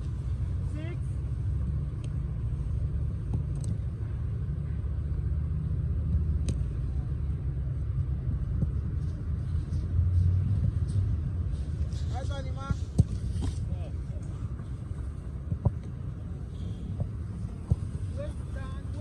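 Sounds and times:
low outdoor rumble: 0:00.0 - 0:19.0.

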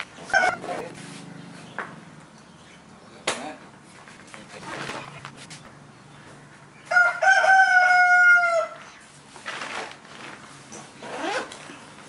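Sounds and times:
rooster crowing: 0:06.9 - 0:08.8.

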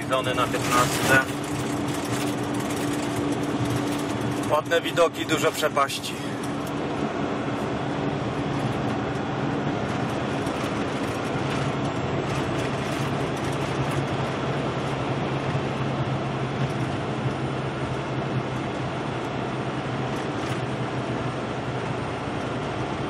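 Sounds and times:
truck engine drone: 0:00.0 - 0:23.0
tyre and wind noise: 0:06.6 - 0:22.9.

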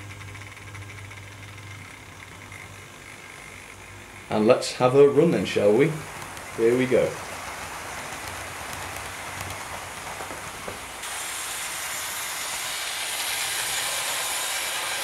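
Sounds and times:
model train whirring: 0:00.0 - 0:15.0
faint rail clicks: 0:06.0 - 0:11.0.

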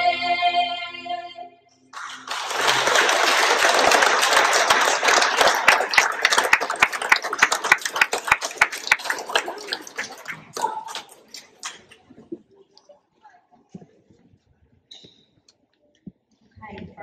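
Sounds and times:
audience applauding: 0:01.9 - 0:12.0.

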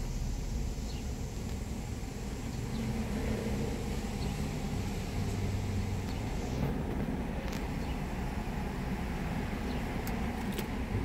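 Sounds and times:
car engine idling hum: 0:00.0 - 0:11.0.

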